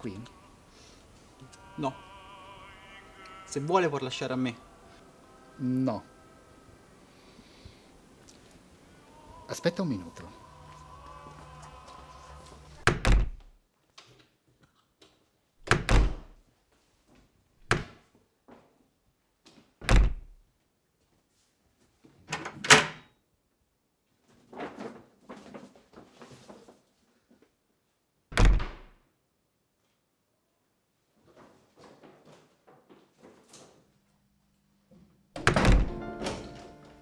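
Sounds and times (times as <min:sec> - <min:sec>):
clattering and rummaging: 0:24.3 - 0:27.0.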